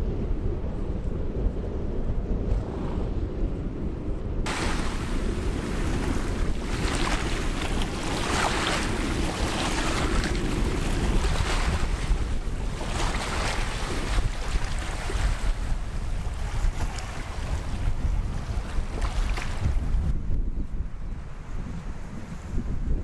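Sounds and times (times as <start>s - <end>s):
wind rumbling on microphone: 0.0s - 23.0s
small waves breaking on shore: 4.5s - 20.0s.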